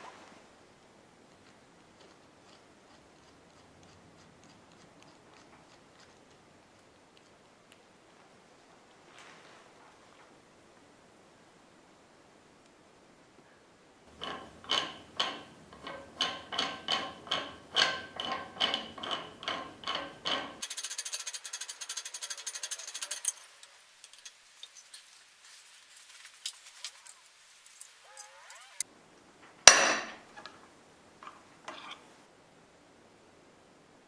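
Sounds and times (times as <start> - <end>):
hydraulic jack pumping clacks: 14.1 - 20.8
fast rattling clicks: 14.2 - 24.8.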